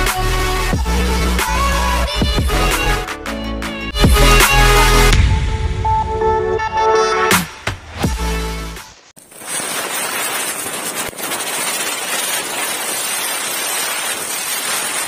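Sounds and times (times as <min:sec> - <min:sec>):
firework crack: 0:07.8 - 0:15.0
ground spinner firework fizzing: 0:09.1 - 0:15.0.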